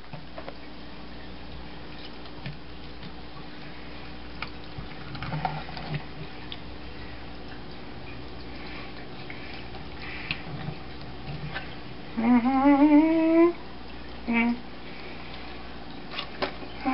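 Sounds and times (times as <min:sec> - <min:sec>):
wet squishing: 0:01.9 - 0:12.2.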